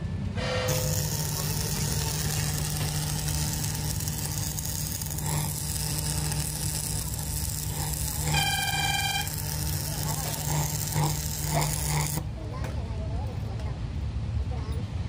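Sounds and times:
low hum: 0.0 - 12.3
welding electrode crackling sizzle: 0.7 - 12.3.

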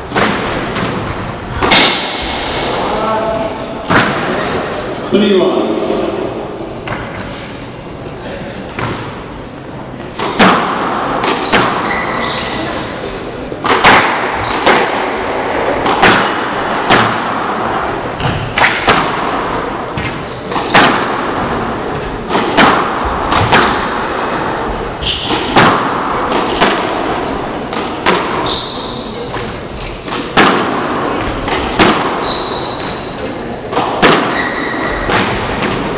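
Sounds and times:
squash ball smacking rackets and walls: 0.0 - 4.6, 8.7 - 35.9
shoes squeaking on wooden floor: 6.8 - 8.4, 11.4 - 13.0, 20.0 - 20.8, 28.4 - 29.9, 32.1 - 33.5, 34.3 - 35.9.

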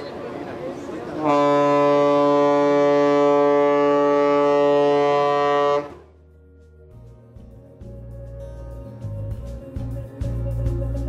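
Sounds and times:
ship's horn blast: 1.1 - 6.3
soft background music: 5.5 - 11.0.

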